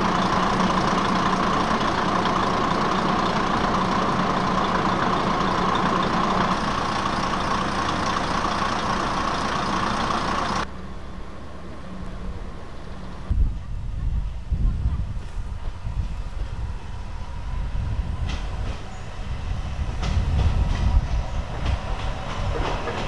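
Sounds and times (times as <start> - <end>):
diesel engine idling: 0.0 - 13.3.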